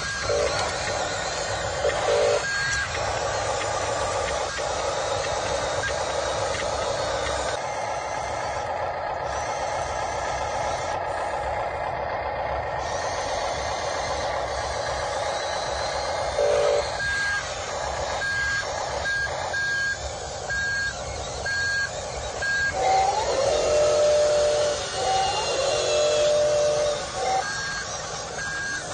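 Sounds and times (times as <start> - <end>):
electric motors and gearboxes running: 0.0 - 28.9
reversing beeper short high beeps: 15.6 - 23.1, 23.7 - 28.9.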